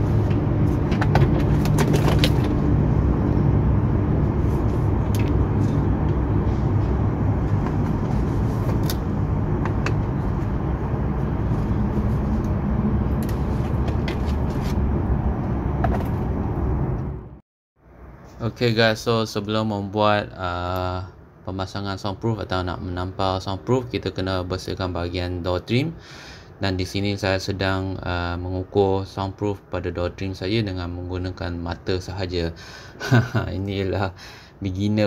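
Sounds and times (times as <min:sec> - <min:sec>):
vehicle rumble: 0:00.0 - 0:19.4.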